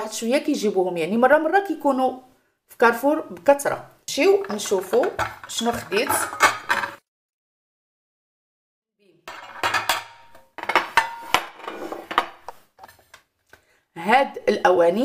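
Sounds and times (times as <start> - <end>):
glass dishes clinking: 9.3 - 12.4.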